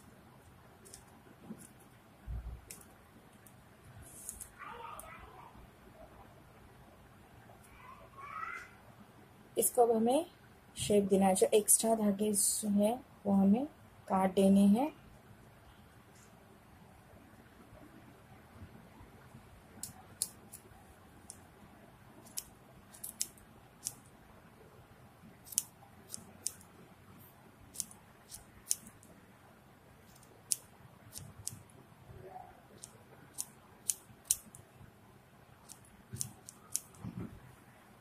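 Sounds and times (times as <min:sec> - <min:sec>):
scissors snipping: 0:19.8 - 0:21.4, 0:22.2 - 0:24.0, 0:25.4 - 0:26.7, 0:27.7 - 0:29.1, 0:30.1 - 0:31.6, 0:32.8 - 0:34.6, 0:35.6 - 0:37.0.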